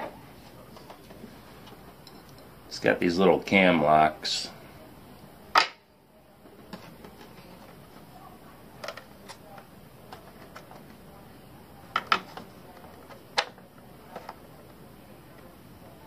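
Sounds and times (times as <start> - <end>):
plastic parts clicking and knocking: 8.8 - 11.0, 11.9 - 14.7.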